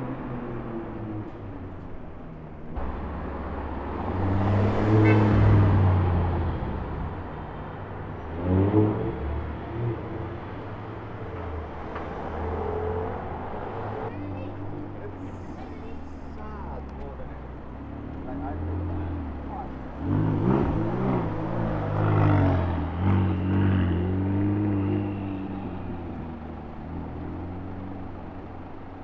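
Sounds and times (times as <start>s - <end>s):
sports car engine and exhaust: 0.0s - 29.0s
street traffic: 0.0s - 29.0s
car revving while accelerating: 2.8s - 7.2s, 8.2s - 10.4s, 17.9s - 28.4s.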